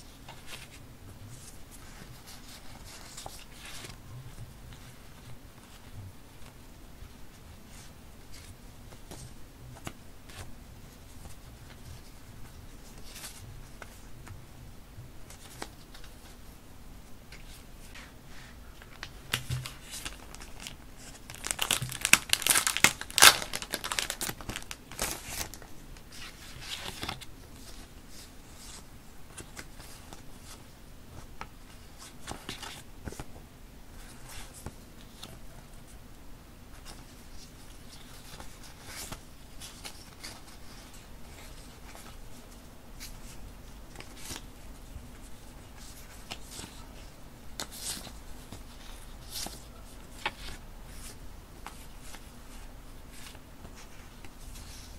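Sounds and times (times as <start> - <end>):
plastic packaging crinkling and tearing: 19.0 - 25.6.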